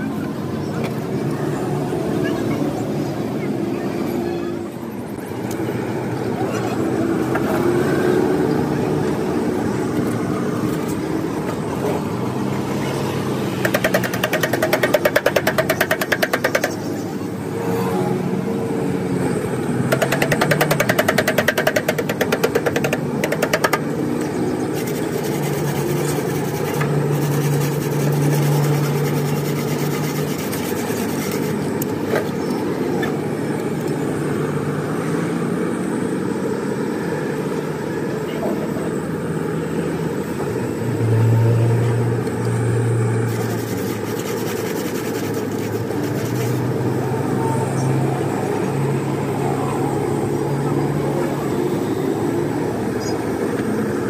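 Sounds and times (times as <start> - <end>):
machine drone: 0.0 - 54.0
metal tool scraping radiator: 13.6 - 16.9, 19.9 - 23.8, 24.7 - 32.3, 43.3 - 46.6.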